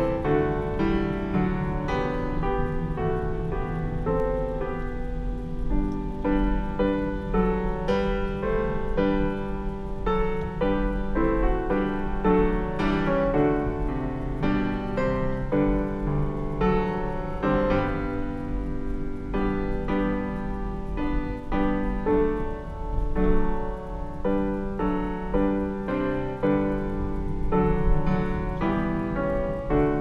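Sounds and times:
piano music: 0.0s - 30.0s.

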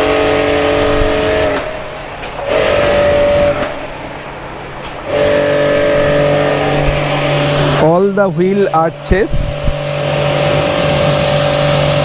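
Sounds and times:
pressure washer motor humming: 0.0s - 12.0s
water jet hissing: 4.9s - 12.0s.

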